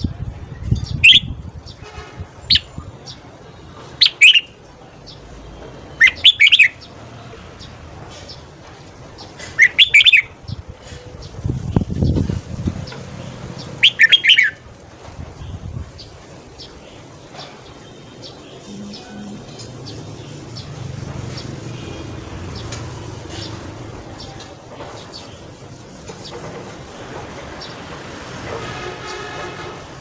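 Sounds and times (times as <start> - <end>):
bird singing whistled notes: 0.8 - 1.3, 4.0 - 4.6, 6.0 - 6.8, 9.6 - 10.3, 13.8 - 14.6.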